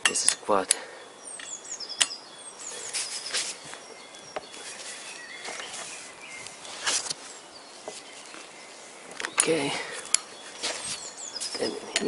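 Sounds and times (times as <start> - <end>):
small birds chirping: 0.0 - 12.0
sharp metallic click: 1.4 - 2.2.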